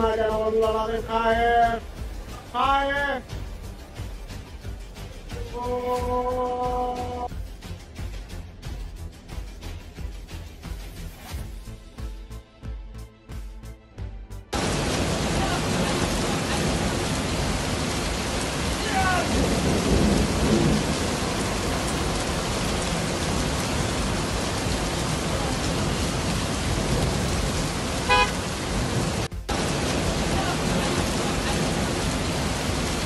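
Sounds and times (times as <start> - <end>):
heavy rain: 0.0 - 10.8, 14.5 - 33.0
muddy torrent rushing: 14.5 - 33.0
short horn-like toot or shout: 28.1 - 28.4.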